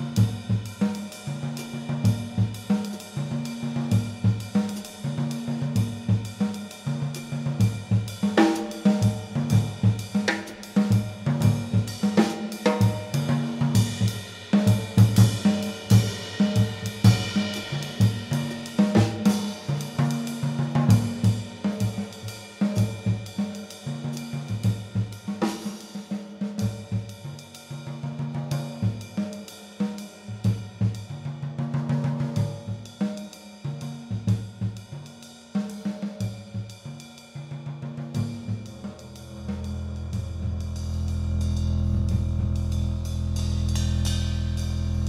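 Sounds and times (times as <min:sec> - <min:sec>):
drum kit playing: 0:00.0 - 0:37.0, 0:38.0 - 0:45.0
double bass line: 0:38.7 - 0:45.0.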